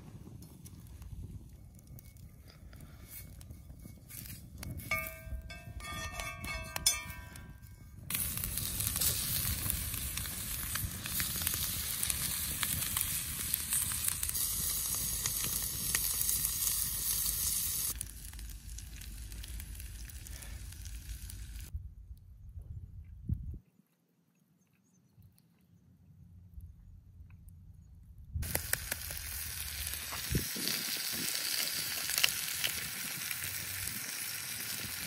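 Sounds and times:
food sizzling in skillet: 8.1s - 21.7s, 28.4s - 35.0s.

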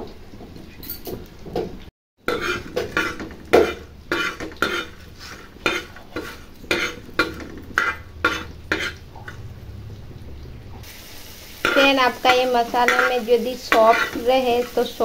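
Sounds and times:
spoon scraping spices on griddle: 2.3s - 9.4s, 11.5s - 15.0s.

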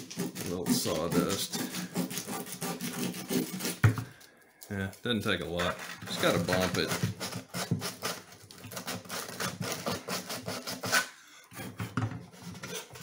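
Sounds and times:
sandpaper rubbing wood: 0.0s - 3.8s, 6.1s - 11.1s.

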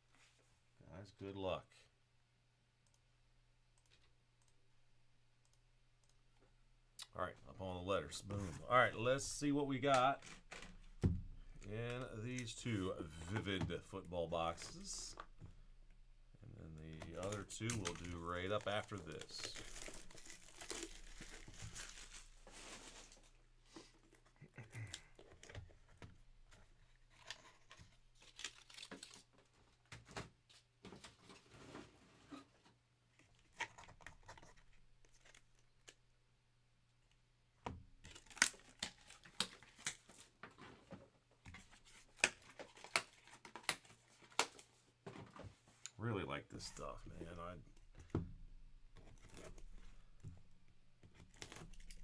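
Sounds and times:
plastic shrink-wrap crinkling and tearing: 17.2s - 23.4s, 27.1s - 29.4s, 38.0s - 40.3s, 51.1s - 52.0s.

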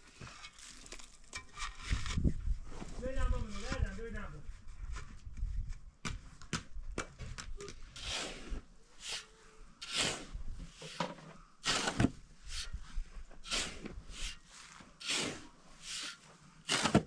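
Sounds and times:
shovel scraping sand: 7.9s - 17.0s.

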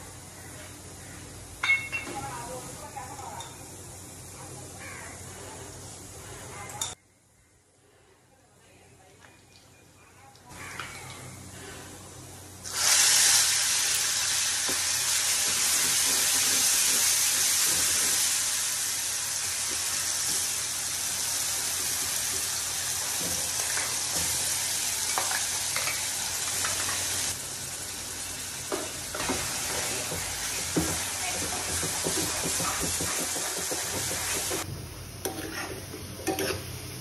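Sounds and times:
paste sizzling in hot oil: 12.5s - 37.0s
metal spoon scraping a pan: 35.2s - 36.7s.

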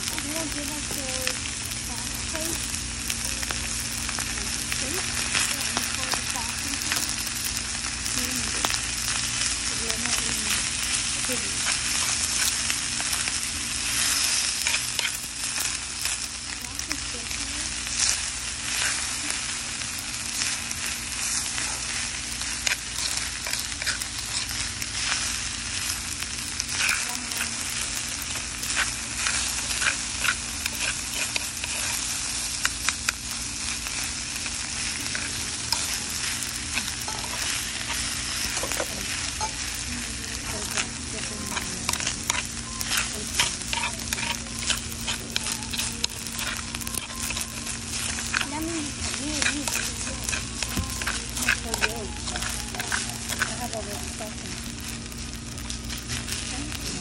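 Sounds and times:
rice sizzling in a hot bowl: 0.0s - 57.0s
metal spoon scraping rice: 22.4s - 26.0s, 26.6s - 32.2s, 34.9s - 39.8s, 40.4s - 55.2s
spoon clicking against stone: 41.5s - 54.0s.

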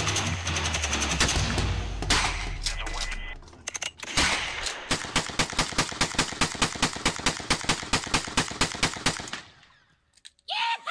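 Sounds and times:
shotgun rapid fire: 0.0s - 2.6s, 4.1s - 9.5s.

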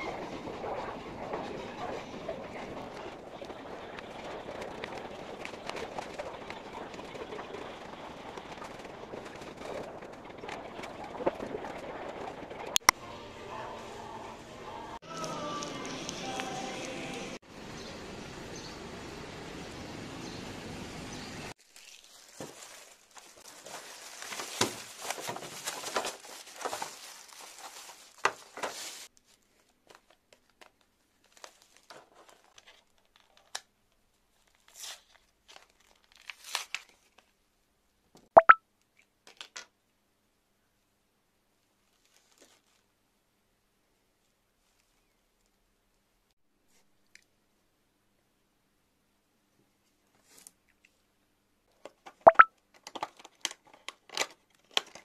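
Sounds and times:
plastic packaging crinkling and tearing: 21.6s - 33.7s, 34.3s - 37.4s, 52.7s - 55.0s.

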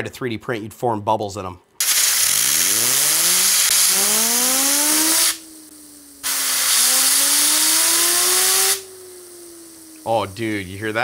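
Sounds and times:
compressed air hissing: 1.8s - 11.0s
fidget spinner whine: 1.8s - 11.0s.

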